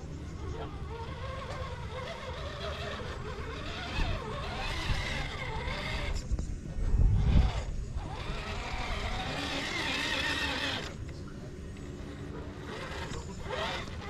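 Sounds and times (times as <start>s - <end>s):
electric motor whining: 0.0s - 14.0s.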